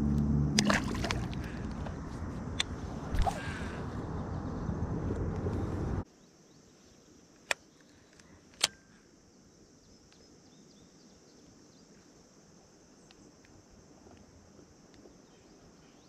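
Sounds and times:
low rumbling: 0.0 - 6.0
steady high hum: 0.0 - 6.0.

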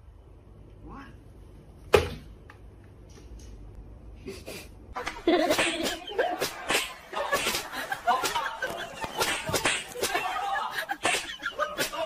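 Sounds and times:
people laughing: 5.0 - 12.0.

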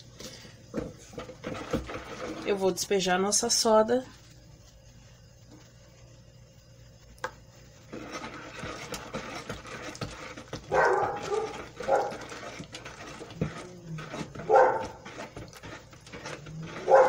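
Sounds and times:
dog barking: 10.7 - 12.2, 14.4 - 15.0, 16.8 - 17.0.

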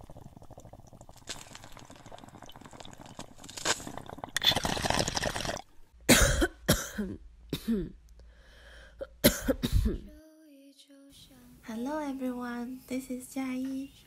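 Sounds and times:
water bubbling in a bong: 0.0 - 5.9.

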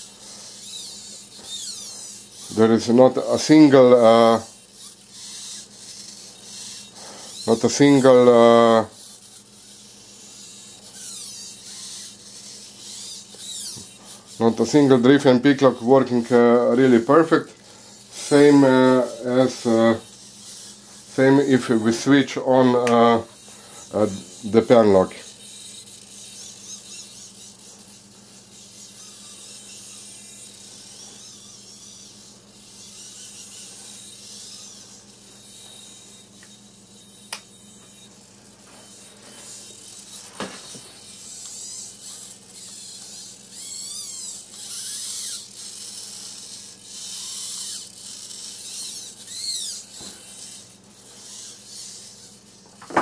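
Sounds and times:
gimbal servos whining: 0.0 - 53.0
sharp click: 22.8 - 23.1, 37.3 - 37.5.

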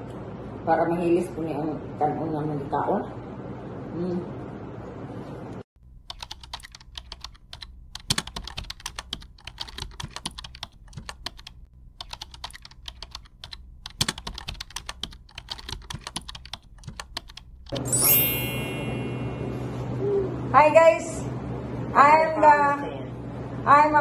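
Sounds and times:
keyboard typing clicks: 6.0 - 18.4.

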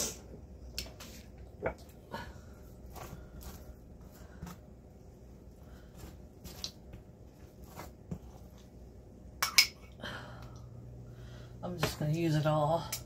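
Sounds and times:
knife scraping bread: 2.8 - 4.7, 5.7 - 8.6.

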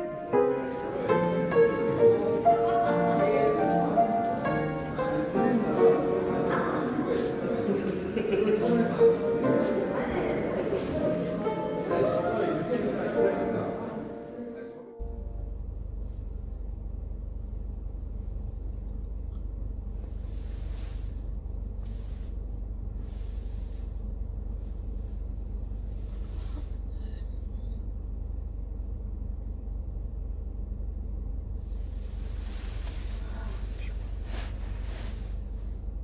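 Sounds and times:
faint rustles: 0.0 - 14.0, 18.9 - 28.2, 31.4 - 36.0
low rumble: 15.0 - 36.0.

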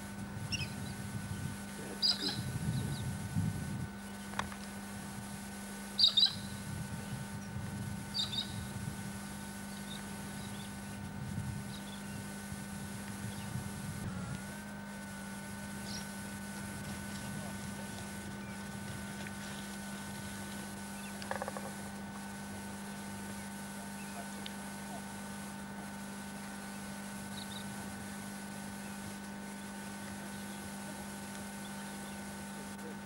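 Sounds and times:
steady hum: 0.0 - 33.0
high bird chirps: 2.0 - 2.5, 6.0 - 6.5, 8.1 - 8.6.

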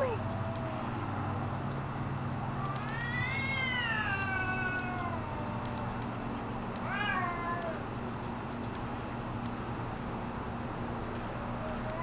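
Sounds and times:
cats yowling: 2.5 - 6.0, 6.8 - 7.9, 11.5 - 12.0.

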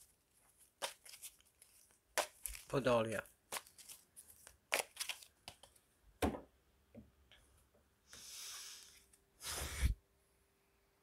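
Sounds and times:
cards rustling: 0.0 - 5.8.

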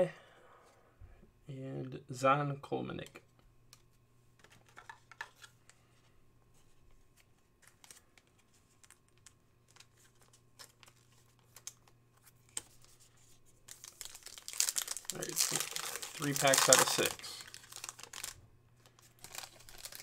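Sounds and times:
foil wrapper crinkling: 13.6 - 20.0.

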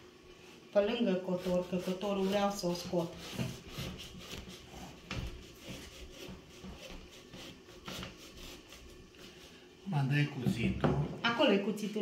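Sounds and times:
hacksaw scraping through pumpkin: 1.3 - 8.8.

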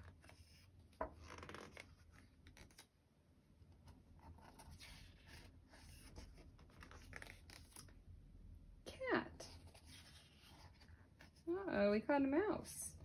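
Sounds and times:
fingers scraping pages: 0.0 - 2.9
paper page turning: 0.0 - 2.9, 4.2 - 8.0, 9.5 - 11.4.

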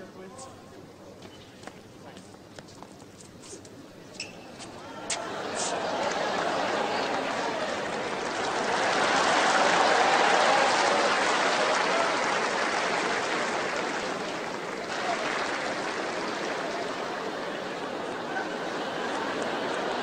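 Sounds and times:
stadium crowd applauding: 4.8 - 20.0.

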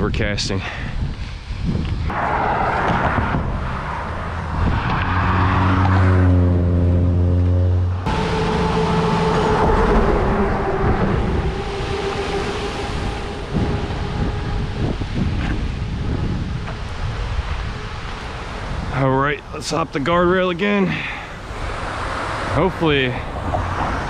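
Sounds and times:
wind on microphone: 0.0 - 7.3, 8.0 - 19.0
road traffic hum: 0.0 - 24.0
passing vehicle engine hum: 2.1 - 18.9, 21.2 - 24.0.

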